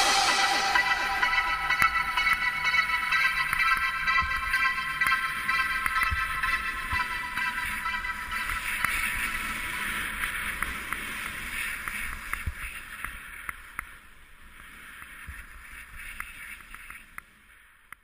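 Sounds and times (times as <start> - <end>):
low rumble: 0.0 - 4.2.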